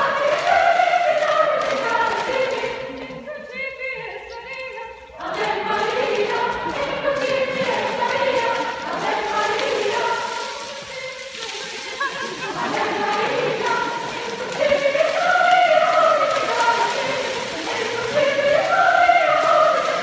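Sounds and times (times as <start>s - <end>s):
youth choir singing: 0.0s - 20.0s.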